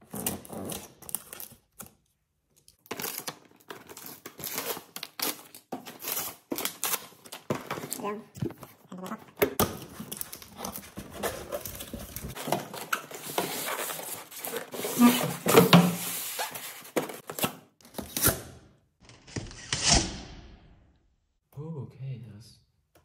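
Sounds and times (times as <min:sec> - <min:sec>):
cardboard box scraping and rustling: 0:10.6 - 0:17.2.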